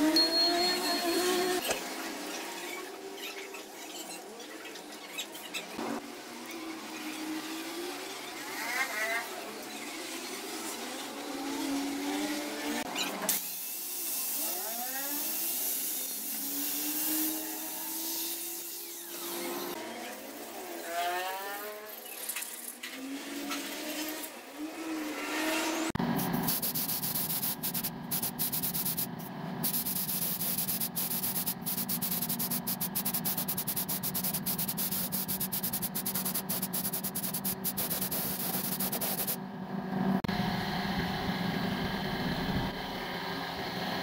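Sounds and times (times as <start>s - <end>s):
spray gun hissing: 26.1s - 39.4s.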